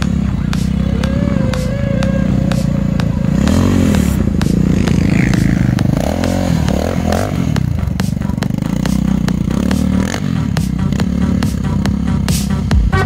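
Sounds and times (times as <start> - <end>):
quad bike engine revving: 0.0 - 13.0.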